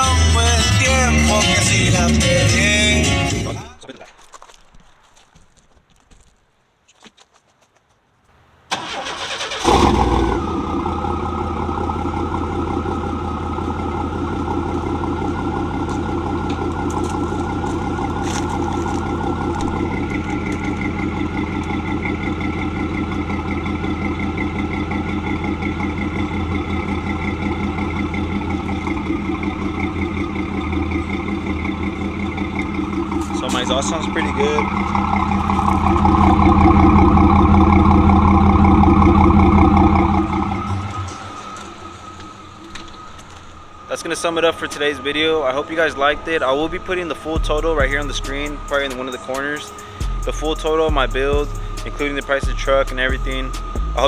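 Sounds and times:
truck engine idling: 0.0 - 3.9, 8.7 - 54.0
starter cranking engine: 8.7 - 43.4.

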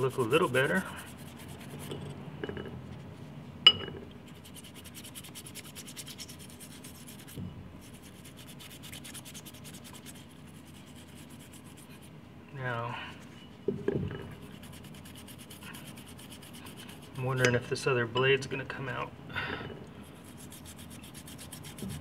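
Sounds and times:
toothbrush scrubbing metal: 0.0 - 2.2, 4.2 - 12.1, 14.2 - 17.6, 20.0 - 22.0.

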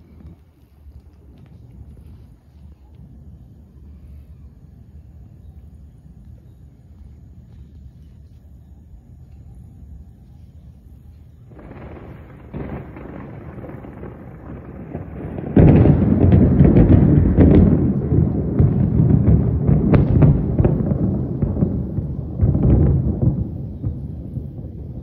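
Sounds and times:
thunder rumbling and clapping: 11.5 - 25.0.

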